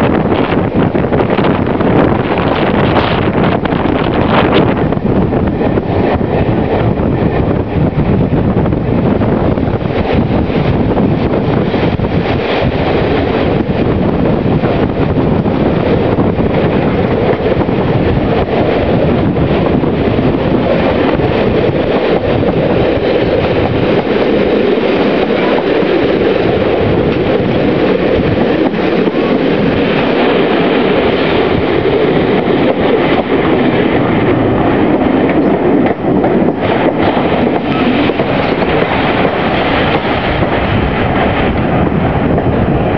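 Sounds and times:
train wheel and wind rush: 0.0 - 42.9
wheels clicking over rail joints: 0.3 - 42.6.

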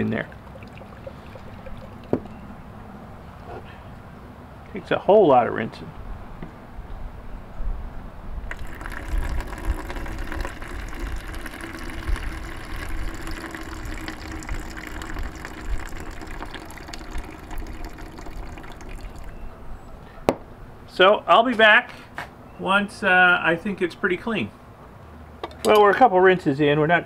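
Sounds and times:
water pouring into plastic bucket: 0.0 - 2.3, 8.5 - 19.4.

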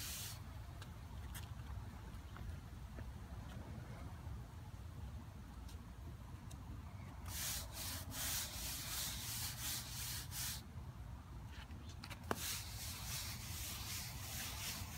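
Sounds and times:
push broom scrubbing concrete: 0.0 - 0.4, 7.3 - 10.6, 12.3 - 14.9.

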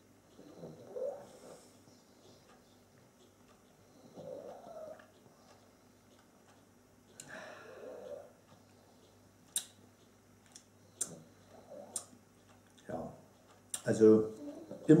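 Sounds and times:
lip smacks: 9.5 - 9.8.

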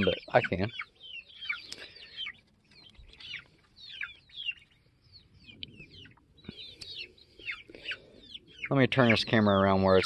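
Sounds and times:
chickens peeping: 0.0 - 10.0.

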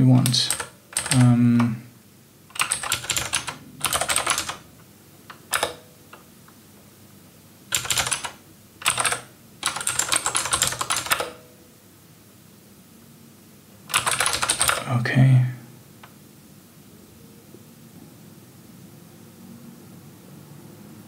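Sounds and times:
computer keyboard typing: 0.0 - 1.8, 2.5 - 4.7, 5.3 - 6.2, 7.7 - 11.5, 13.9 - 14.9.

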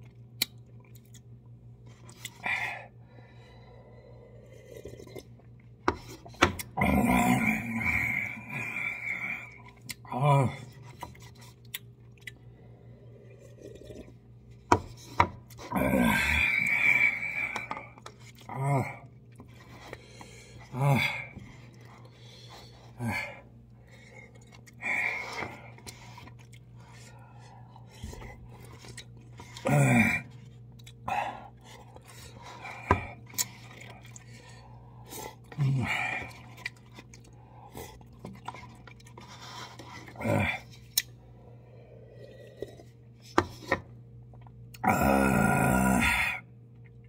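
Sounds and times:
man chewing and slurping: 13.0 - 41.1.

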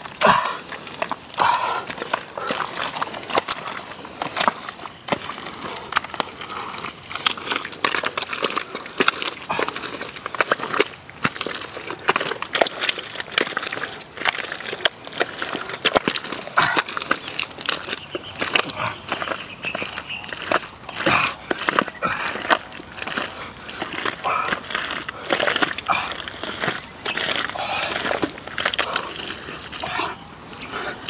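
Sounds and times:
hands squelching in wet mud: 0.0 - 31.0.

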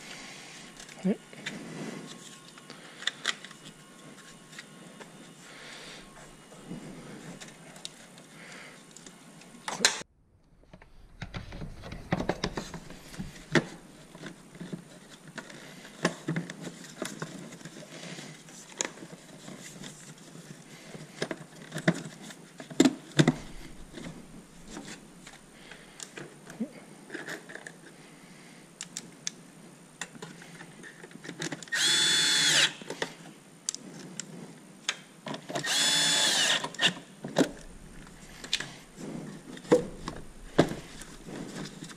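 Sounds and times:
plastic parts knocking and clicking: 11.0 - 17.8
cordless drill whining: 31.7 - 32.8, 35.6 - 37.0.

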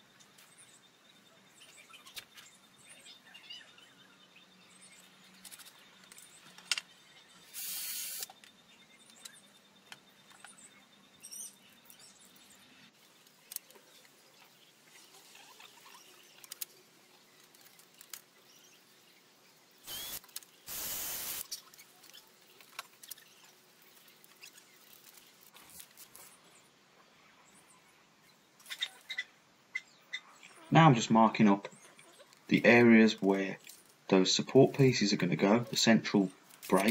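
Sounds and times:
faint bird chirps: 0.0 - 36.9
short harsh noise bursts: 19.9 - 21.4.

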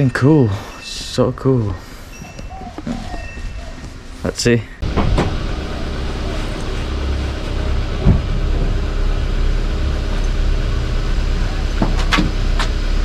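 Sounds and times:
car engine idling: 4.8 - 13.0.

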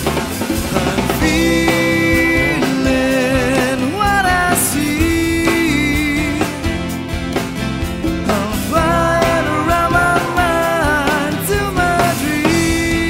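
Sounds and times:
rock song: 0.0 - 13.0.

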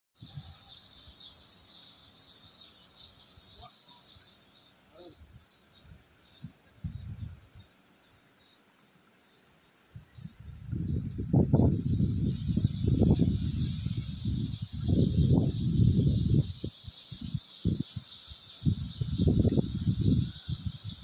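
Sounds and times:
insect chirping: 0.2 - 21.0.

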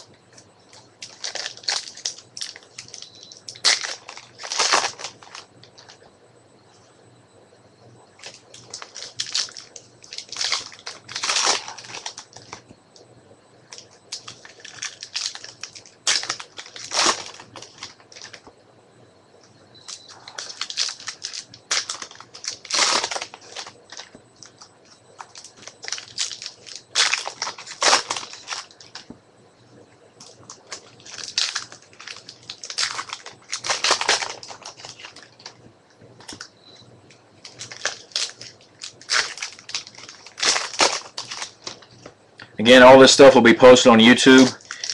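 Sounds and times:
cards rustling: 0.7 - 6.0, 8.2 - 12.6, 13.7 - 18.4, 19.9 - 29.1, 30.2 - 35.5, 37.4 - 41.9, 42.9 - 44.9
wrappers crinkling and tearing: 0.7 - 6.0, 8.2 - 12.6, 13.7 - 18.4, 19.9 - 29.1, 30.2 - 35.6, 37.4 - 42.1, 43.7 - 44.9.

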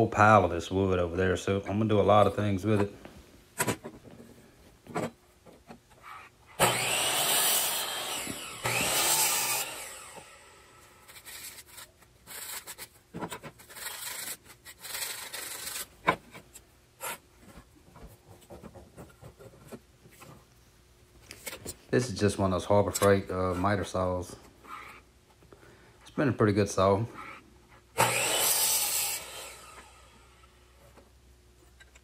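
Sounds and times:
miter saw cutting wood: 6.6 - 12.6, 28.0 - 30.4.

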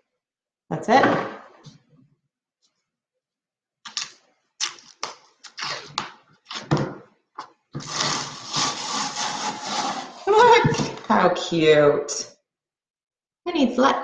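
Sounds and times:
continuous scraping rub: 7.8 - 10.4.

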